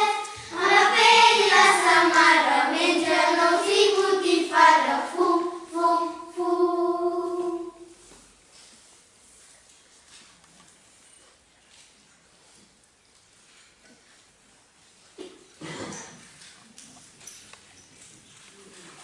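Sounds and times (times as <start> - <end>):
child singing: 0.0 - 7.9.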